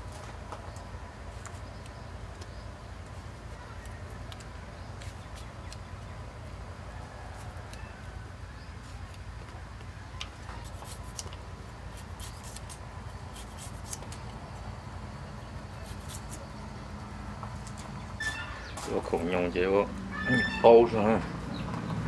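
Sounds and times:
low steady hum: 0.0 - 22.0
scissors snipping: 3.9 - 5.9, 10.2 - 14.3, 15.8 - 16.5.

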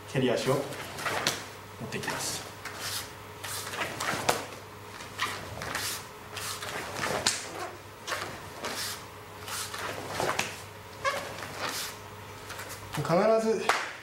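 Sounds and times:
foot slapping hand: 1.0 - 1.5, 2.6 - 10.6, 13.7 - 14.0
cloth swishing: 2.7 - 12.9
uniform snapping: 7.0 - 8.8.

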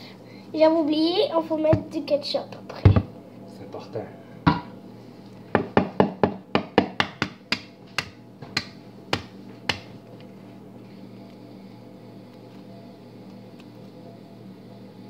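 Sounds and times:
egg tapping on wooden bowl: 5.6 - 9.9.

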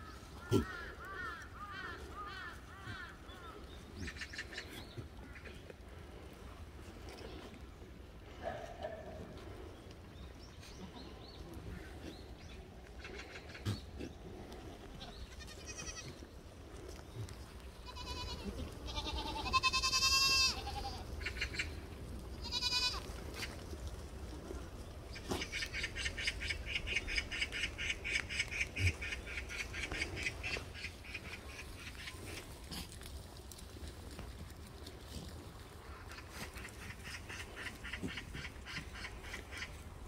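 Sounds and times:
goats bleating: 15.0 - 16.3, 17.8 - 21.1, 22.4 - 23.1.

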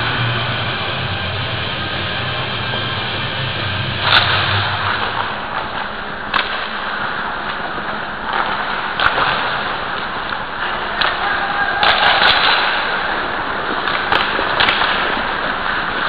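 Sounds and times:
steady rushing hiss: 0.0 - 11.8
skate scraping rush: 0.0 - 16.0
sharp clacks: 11.8 - 13.0, 13.8 - 15.4.

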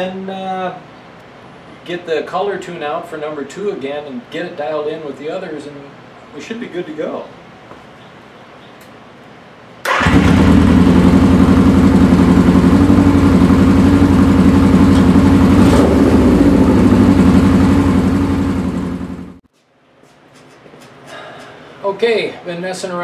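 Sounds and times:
motorcycle engine idling: 9.9 - 19.4.

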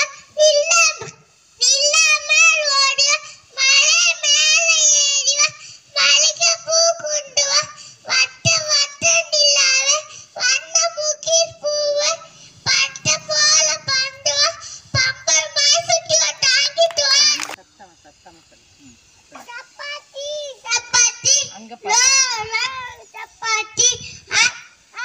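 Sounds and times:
girl singing into microphone: 0.4 - 17.4.

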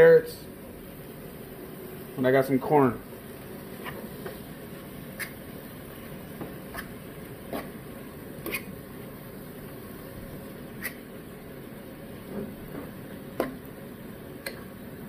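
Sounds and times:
food hissing in a pot: 0.5 - 15.0
sharp pops from cooking: 5.2 - 5.4, 12.3 - 13.7, 14.4 - 14.7.

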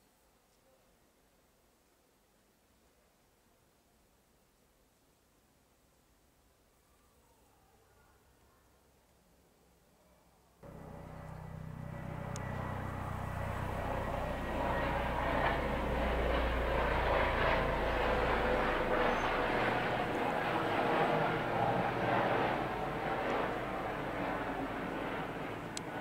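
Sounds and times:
engine low hum: 10.6 - 26.0.

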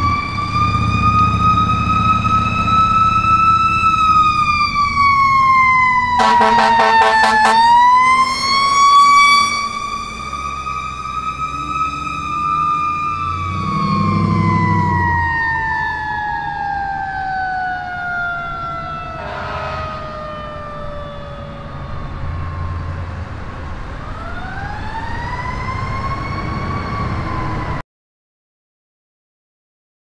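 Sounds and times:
fire engine siren wailing: 0.0 - 27.8
truck engine rumble: 0.0 - 27.8
short low horn blast: 6.2 - 7.8, 19.2 - 20.1.

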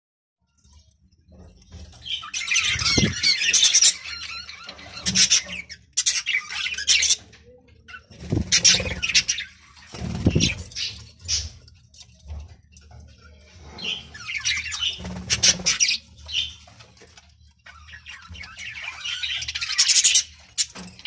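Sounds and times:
budgerigars chattering and chirping: 2.0 - 11.6, 13.6 - 17.0, 17.6 - 21.0.

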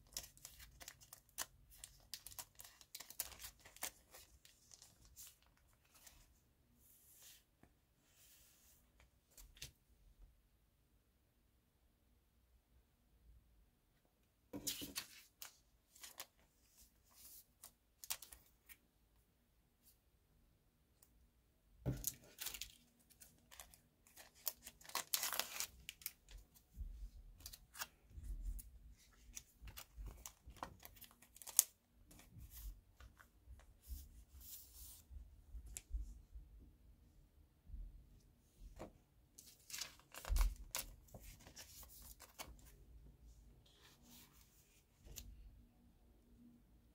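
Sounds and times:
paper rustling and crinkling: 0.0 - 6.3, 14.6 - 18.8, 21.9 - 35.0, 39.4 - 42.7.

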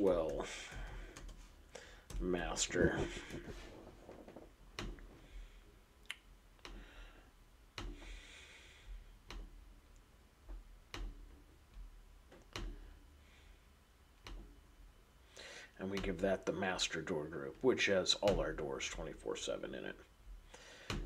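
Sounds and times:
computer mouse clicking: 0.2 - 1.4.

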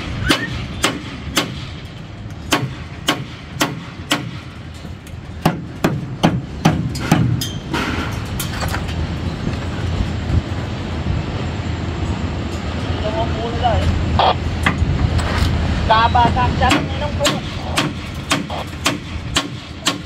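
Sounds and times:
hammer striking formwork: 0.0 - 8.3, 16.6 - 20.0
low rumble of site noise: 0.0 - 20.0.

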